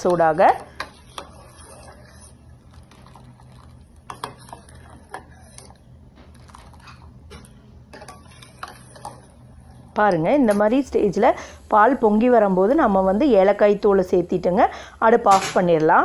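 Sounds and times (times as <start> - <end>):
spoon stirring in metal saucepan: 0.0 - 10.9
low steady hum: 0.0 - 16.0.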